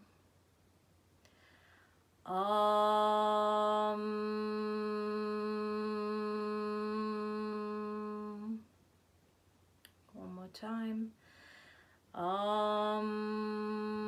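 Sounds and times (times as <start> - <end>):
woman chanting om: 2.3 - 8.6, 12.1 - 14.0.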